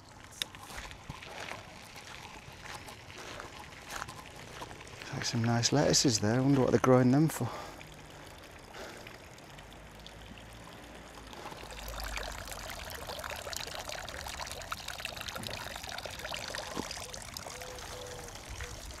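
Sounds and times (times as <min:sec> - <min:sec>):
bicycle tyres crunching on gravel: 0:00.0 - 0:06.8.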